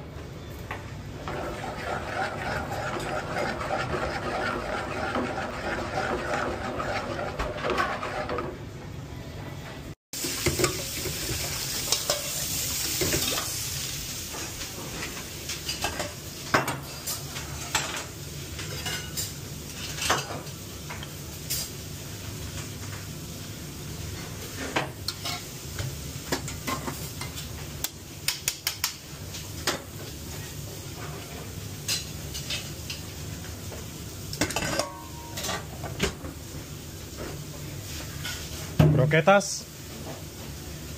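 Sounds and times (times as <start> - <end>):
pan sizzling: 10.2 - 40.9
metal utensils clinking on plates: 15.6 - 21.7, 34.4 - 35.8.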